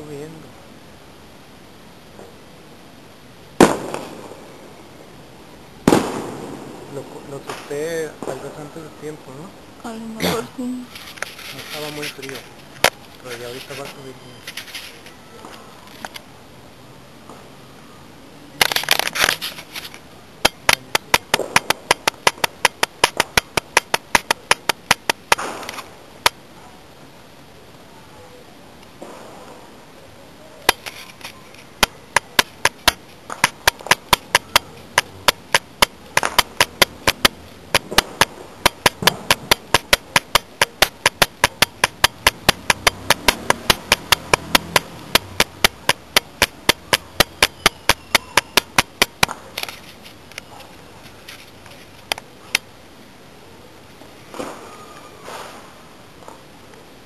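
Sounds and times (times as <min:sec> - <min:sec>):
sharp bangs: 0:03.6 - 0:04.4, 0:05.8 - 0:06.8, 0:20.4 - 0:25.9, 0:31.8 - 0:49.5.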